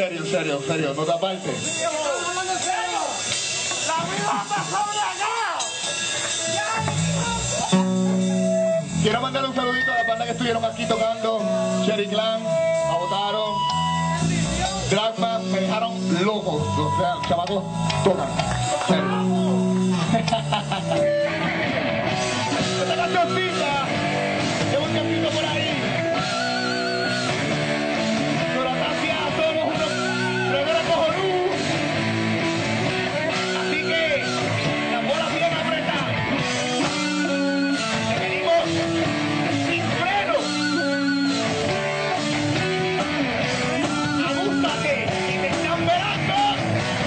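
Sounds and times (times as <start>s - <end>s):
live rock band playing: 0.0s - 47.0s
wavering high note: 6.5s - 14.8s, 40.3s - 41.8s.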